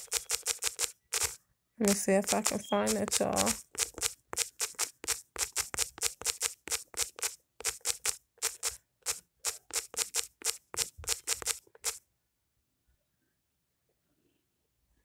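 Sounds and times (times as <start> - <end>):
smartphone keyboard tapping clicks: 0.0 - 12.0.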